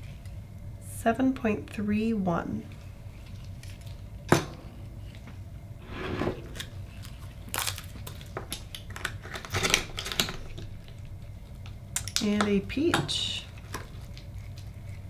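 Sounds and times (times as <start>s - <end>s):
knife scraping oyster shell: 13.6s - 15.0s.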